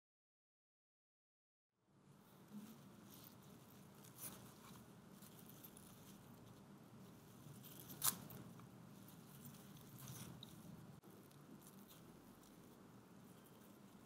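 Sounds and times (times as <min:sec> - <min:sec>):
leaves rustling: 0:02.3 - 0:14.0
stems snapping: 0:07.7 - 0:08.5.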